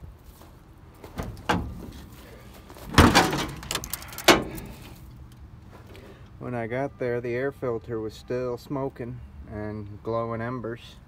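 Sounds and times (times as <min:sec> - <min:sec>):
metal hood clunks and knocks: 0:01.1 - 0:02.0, 0:02.9 - 0:04.6.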